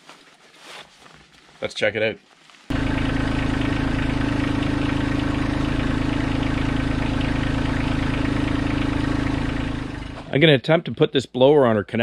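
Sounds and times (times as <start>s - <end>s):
tractor diesel engine idling: 2.7s - 10.4s.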